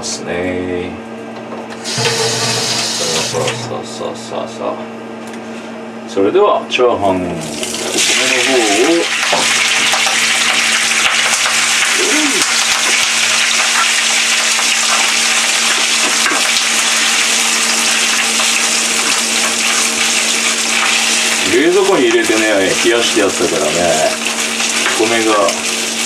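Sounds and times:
rice sizzling in frying pan: 7.5s - 26.0s.

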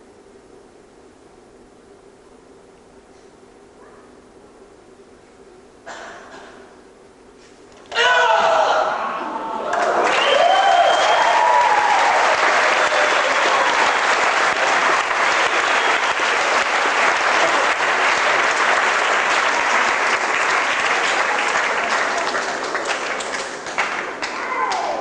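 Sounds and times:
audience applauding in a hall: 9.6s - 25.0s.

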